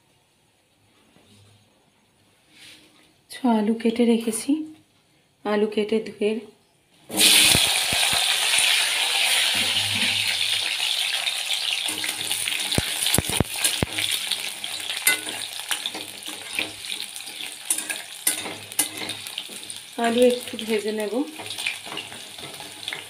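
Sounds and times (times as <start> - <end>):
potatoes sizzling in hot oil: 7.1 - 23.0.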